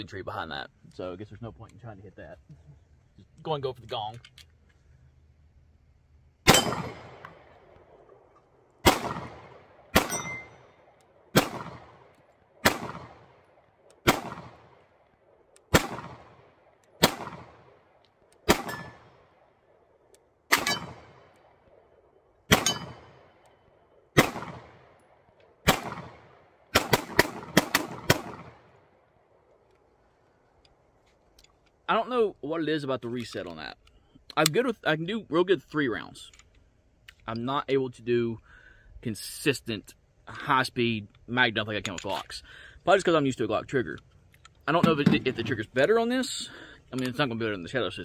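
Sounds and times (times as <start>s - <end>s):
pistol shots with echo: 6.4s - 8.0s, 8.8s - 15.0s, 15.7s - 19.5s, 20.5s - 21.6s, 22.5s - 23.4s, 24.2s - 28.8s, 44.8s - 45.4s.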